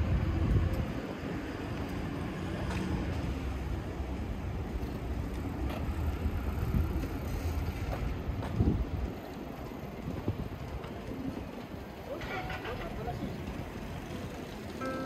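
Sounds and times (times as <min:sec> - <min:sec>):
low rumble of road traffic: 0:00.0 - 0:15.0.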